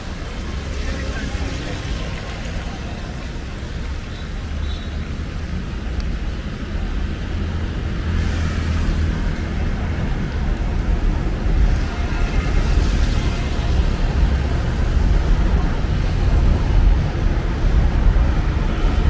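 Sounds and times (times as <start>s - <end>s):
tyre hiss on wet road: 0.0s - 10.1s
engine rumble of traffic: 0.0s - 19.0s.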